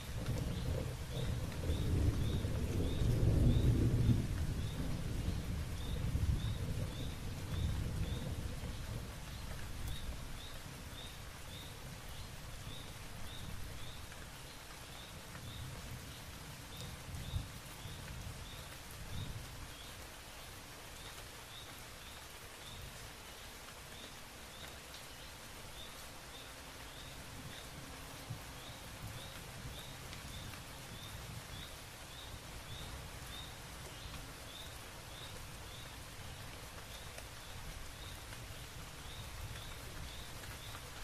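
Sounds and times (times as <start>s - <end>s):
thunder rumbling: 0.0s - 10.4s
steady rain hissing: 0.0s - 41.0s.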